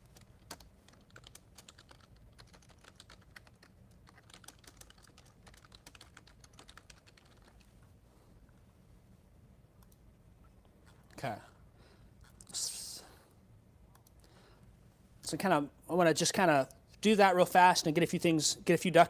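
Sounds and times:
typing on computer keyboard: 0.1 - 7.7.

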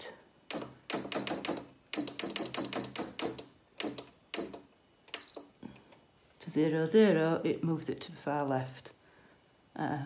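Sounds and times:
sewing machine beeping: 0.5 - 5.6.

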